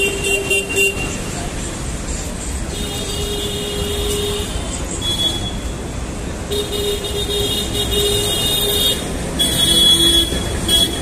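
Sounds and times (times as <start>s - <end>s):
street traffic rumbling: 0.0s - 11.0s
vehicle horn: 6.5s - 11.0s.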